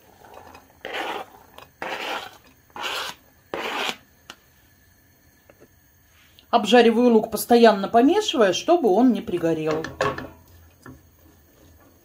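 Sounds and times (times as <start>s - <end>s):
onion scraped off cutting board: 0.2s - 4.0s.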